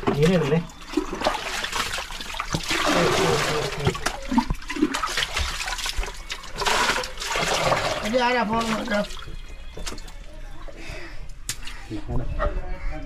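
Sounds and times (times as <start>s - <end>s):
muddy water sloshing and splashing: 0.0s - 10.4s.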